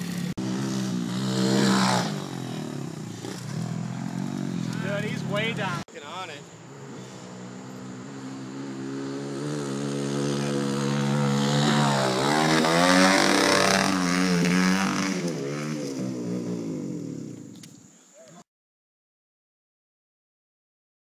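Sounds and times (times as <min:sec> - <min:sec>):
dirt bike engine revving: 0:00.0 - 0:17.5.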